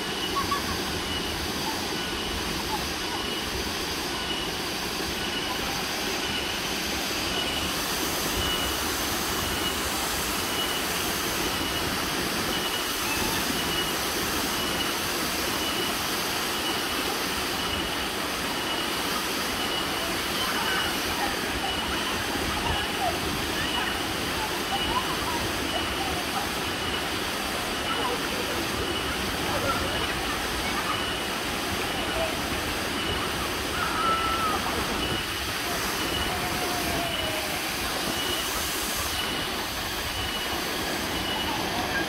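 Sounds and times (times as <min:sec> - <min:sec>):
waterfall pouring into pool: 0:00.0 - 0:42.0
faint high chirp: 0:08.4 - 0:08.8.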